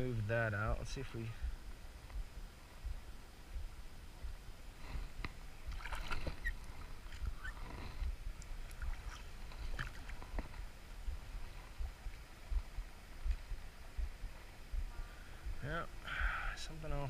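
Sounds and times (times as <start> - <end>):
river water splashing: 5.3 - 7.7, 8.3 - 14.7.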